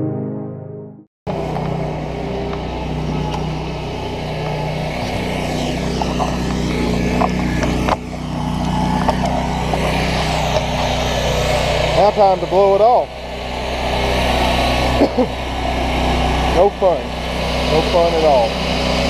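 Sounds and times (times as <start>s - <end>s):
gas trimmer engine running: 1.3s - 19.0s.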